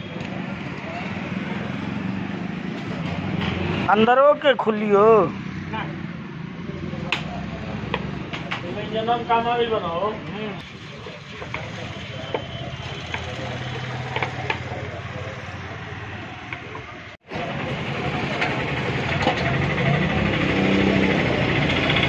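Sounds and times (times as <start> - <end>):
engine running nearby: 11.4 - 22.0.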